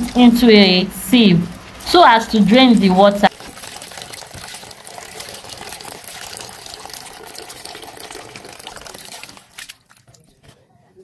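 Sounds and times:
hand swirling rice in water: 0:03.3 - 0:10.2
tap water running into bowl: 0:03.3 - 0:10.2.

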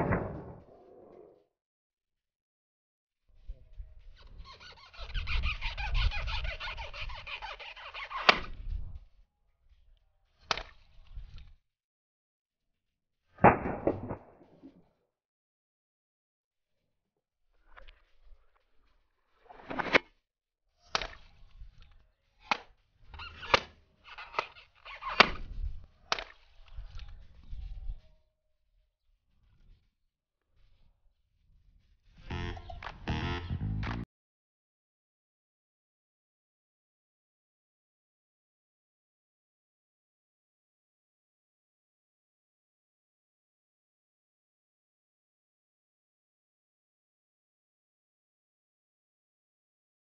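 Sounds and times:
knife rubbing on rubber balloon: 0:04.0 - 0:08.6.

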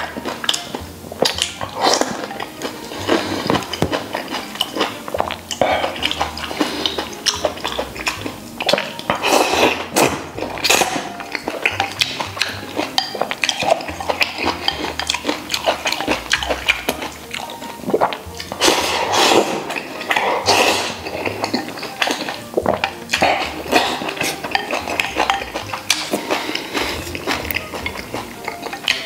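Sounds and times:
chewing: 0:00.0 - 0:29.0
noodles slurped: 0:00.0 - 0:29.0
chopsticks clicking against bowl: 0:21.5 - 0:29.0.

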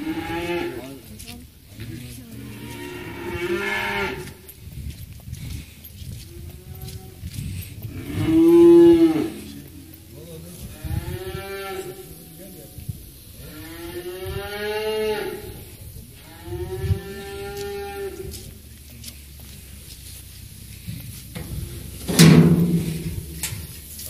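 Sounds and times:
cattle mooing: 0:07.9 - 0:09.6.

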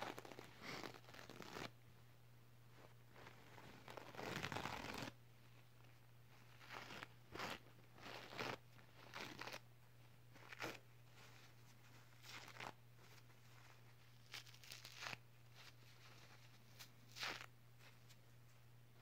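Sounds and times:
faint low hum: 0:00.0 - 0:19.0
paper tissue crumpling: 0:10.3 - 0:18.2.

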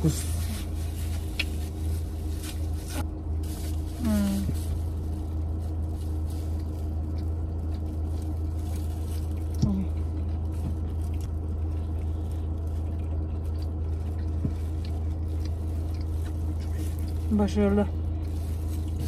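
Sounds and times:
plastic wrapper crinkling: 0:00.0 - 0:19.0
people chewing food: 0:03.7 - 0:19.0.

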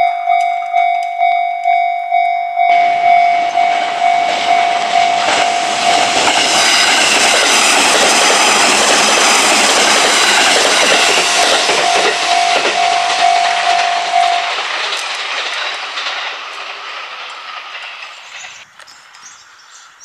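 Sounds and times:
level crossing bell clanging: 0:00.0 - 0:07.6, 0:10.4 - 0:14.6
passing train rushing: 0:00.0 - 0:20.0.

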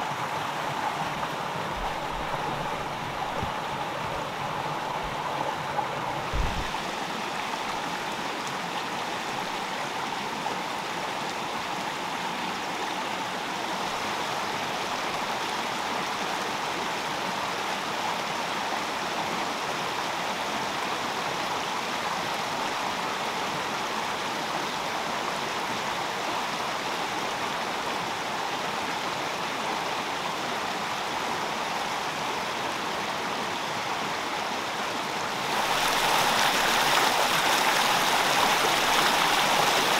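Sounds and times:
stream rushing over rocks: 0:00.0 - 0:39.9
low thump: 0:06.3 - 0:06.8.

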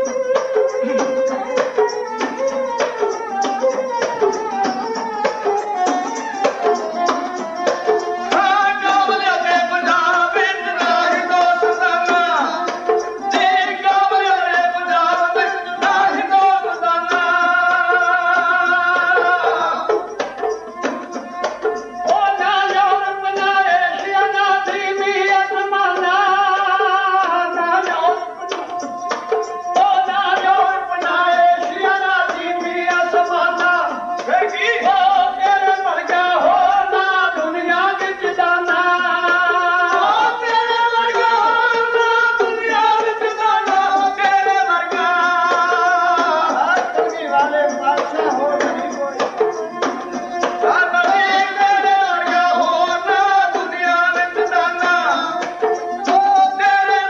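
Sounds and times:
bowed string instrument: 0:00.0 - 0:37.8
hourglass hand drum: 0:00.0 - 0:57.0
person singing devotional ballad: 0:00.0 - 0:57.0.

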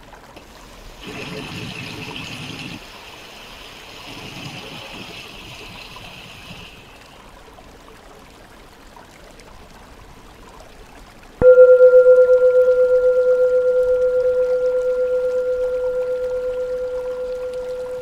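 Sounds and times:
running water hissing: 0:00.4 - 0:07.4.

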